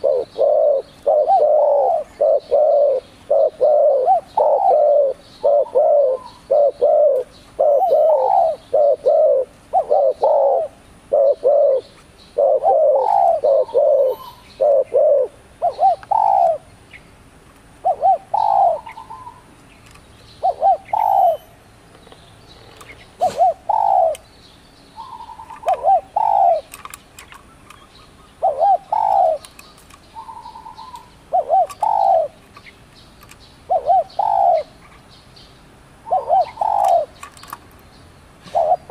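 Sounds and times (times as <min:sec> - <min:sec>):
dove cooing: 0:00.0 - 0:16.7, 0:17.8 - 0:19.5, 0:20.4 - 0:21.6, 0:23.2 - 0:24.2, 0:25.0 - 0:27.0, 0:28.2 - 0:32.4, 0:33.6 - 0:34.8, 0:36.0 - 0:37.6, 0:38.4 - 0:38.9
distant birds chirping: 0:00.0 - 0:38.9.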